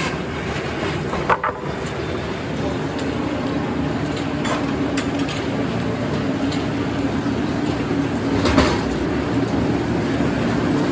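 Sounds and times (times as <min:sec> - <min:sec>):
board clattering onto conveyor: 0:00.0 - 0:01.9, 0:08.3 - 0:09.1
sawmill machinery humming: 0:00.0 - 0:10.9.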